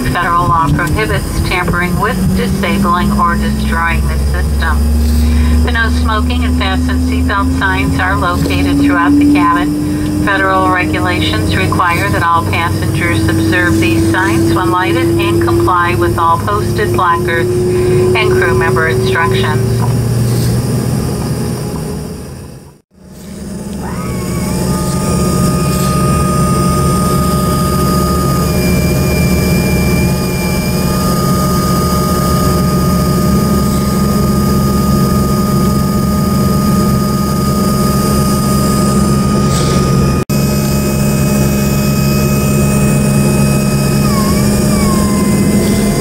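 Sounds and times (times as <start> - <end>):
jet engine high whine: 0.0 - 46.0
jet engine low rumble: 0.0 - 46.0.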